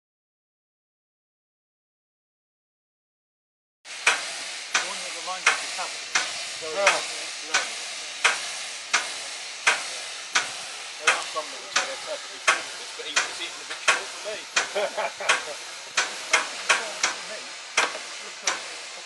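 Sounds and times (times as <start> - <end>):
steam locomotive hissing: 3.9 - 19.0
sharp mechanical knock: 15.3 - 17.2, 17.8 - 18.6.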